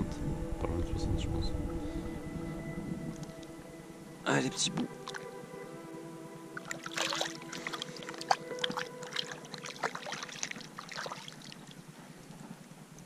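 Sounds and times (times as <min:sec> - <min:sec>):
water splashes and drips: 0:05.0 - 0:05.3, 0:06.6 - 0:11.8.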